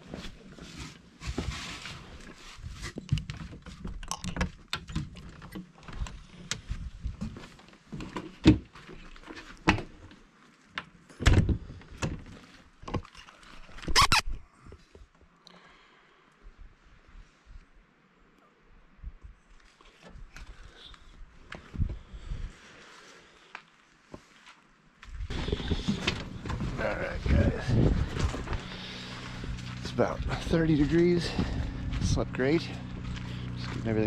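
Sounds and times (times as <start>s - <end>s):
footsteps on gravel: 25.3s - 34.0s.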